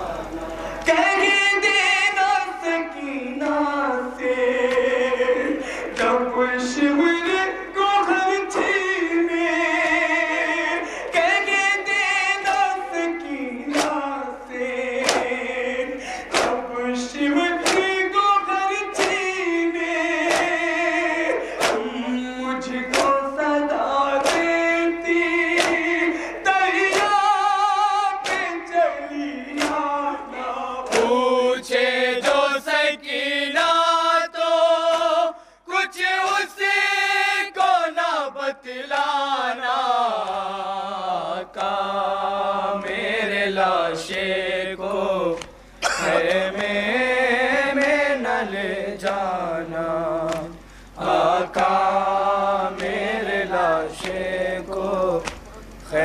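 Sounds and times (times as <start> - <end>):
man singing a lament: 0.0 - 56.0
men singing in chorus: 0.0 - 56.0
chest-beating slaps: 13.7 - 14.0, 15.0 - 15.4, 16.3 - 16.6, 17.6 - 17.9, 19.0 - 19.2, 21.6 - 21.9, 24.2 - 24.5, 25.6 - 25.9, 29.6 - 29.8, 30.8 - 31.1.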